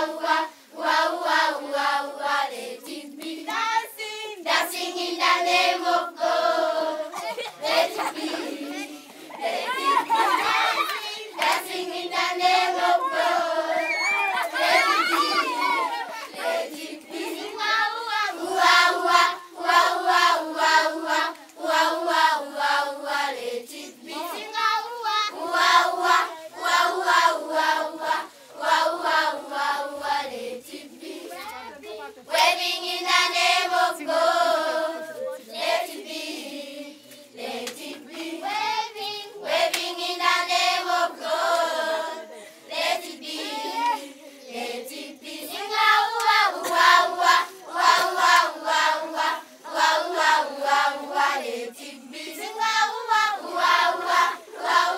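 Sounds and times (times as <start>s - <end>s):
children singing: 0.0s - 31.5s, 32.3s - 54.9s
hands clapping: 11.4s - 11.7s, 39.7s - 39.9s, 46.1s - 46.9s.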